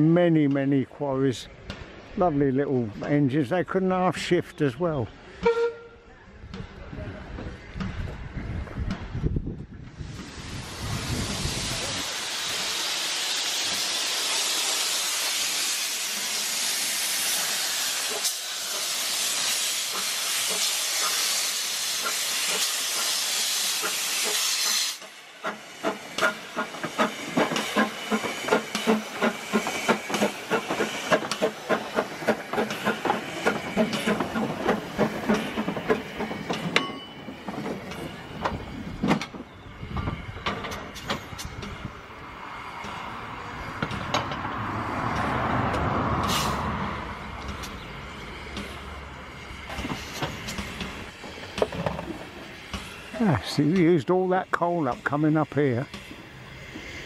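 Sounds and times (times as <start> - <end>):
loud steady hiss: 10.0 - 26.6
steam locomotive chuffing: 10.0 - 57.0.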